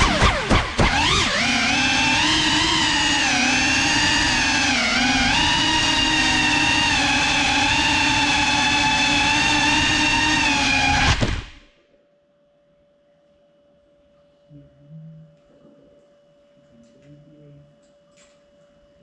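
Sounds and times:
drone motors whining: 0:00.0 - 0:11.7.

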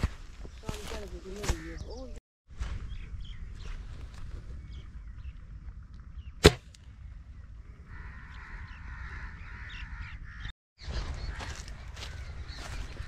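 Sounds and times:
birds calling: 0:00.4 - 0:13.0
air rifle shot: 0:06.4 - 0:06.7.

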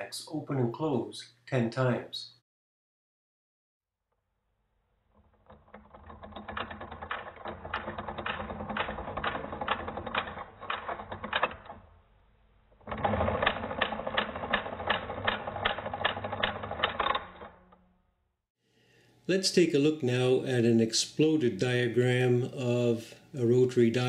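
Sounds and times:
rotary phone dial clicking: 0:05.5 - 0:11.8, 0:12.9 - 0:17.6.

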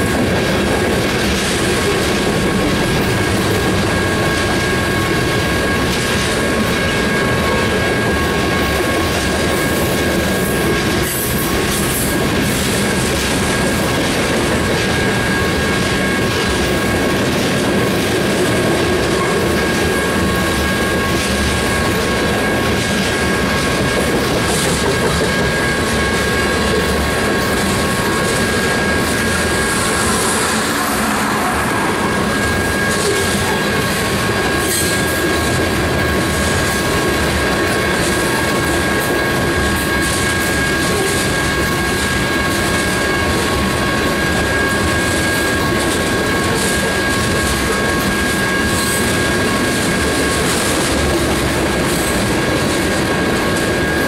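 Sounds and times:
freight train wheels rumbling: 0:00.0 - 0:54.0
thin high-pitched squeal: 0:25.3 - 0:35.1.

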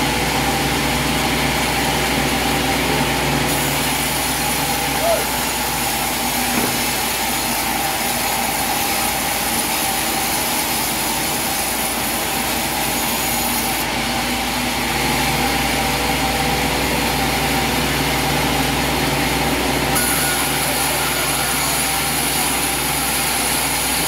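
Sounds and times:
sawmill machine hum: 0:00.0 - 0:24.0
band saw blade whirring: 0:19.9 - 0:24.0.

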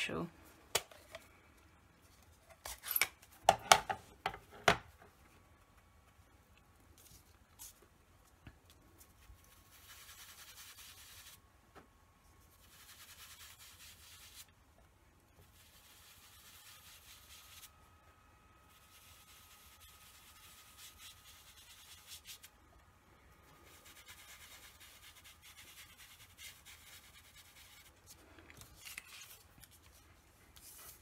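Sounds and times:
sponge dabbing on cardstock: 0:08.6 - 0:11.4, 0:12.5 - 0:14.5, 0:15.4 - 0:17.7, 0:18.7 - 0:22.6, 0:23.4 - 0:28.2.

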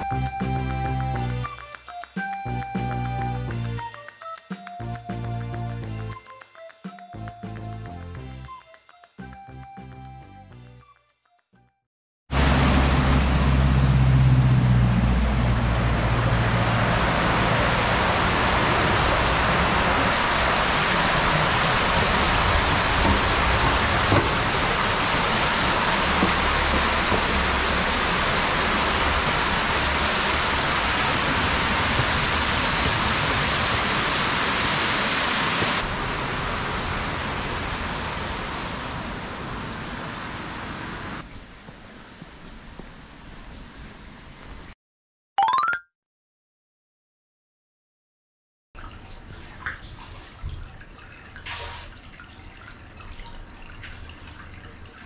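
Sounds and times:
stream cascading down stone: 0:16.5 - 0:41.3.

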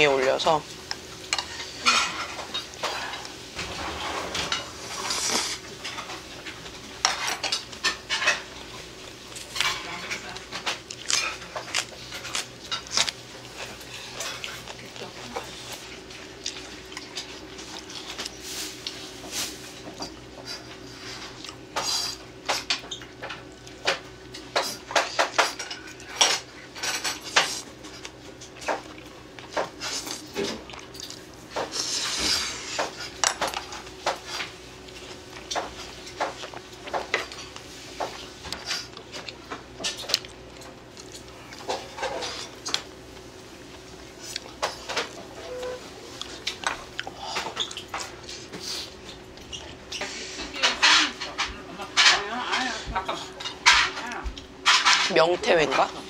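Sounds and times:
chewing: 0:10.4 - 0:19.1, 0:44.1 - 0:45.2, 0:46.1 - 0:50.1
chopsticks clinking on plates: 0:49.9 - 0:55.9.

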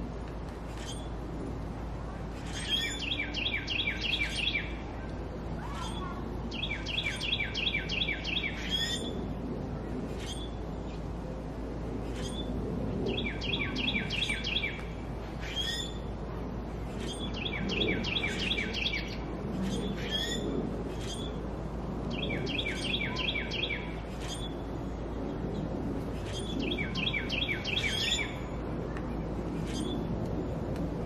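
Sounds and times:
birds chirping: 0:02.4 - 0:04.9, 0:05.6 - 0:09.2, 0:13.1 - 0:16.1, 0:16.8 - 0:20.4, 0:22.1 - 0:24.6, 0:25.6 - 0:30.1.

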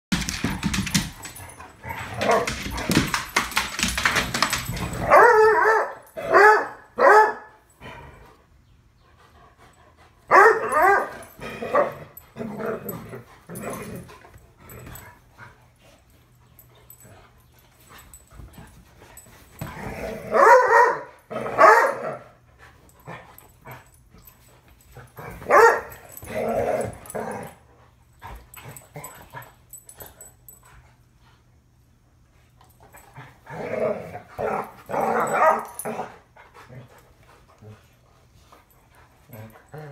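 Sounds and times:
dogs scuffling: 0:00.1 - 0:06.2
dogs barking and yipping: 0:00.2 - 0:07.6, 0:10.3 - 0:13.8, 0:19.5 - 0:22.2, 0:25.1 - 0:27.7, 0:34.3 - 0:36.3.

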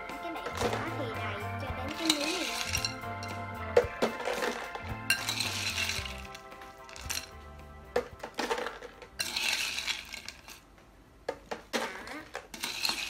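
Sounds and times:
faint background music: 0:00.0 - 0:13.0
ice cubes clattering into jar: 0:01.9 - 0:03.0, 0:03.9 - 0:07.3, 0:08.2 - 0:10.6, 0:11.8 - 0:13.0
metal spoon clinking: 0:01.9 - 0:03.4, 0:04.0 - 0:07.3, 0:08.5 - 0:10.6, 0:12.5 - 0:13.0.

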